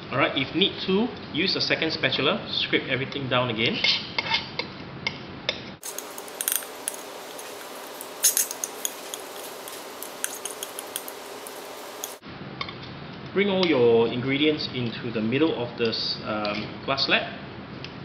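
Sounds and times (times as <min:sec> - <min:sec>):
metal spatulas scraping on glass: 0:05.8 - 0:12.2.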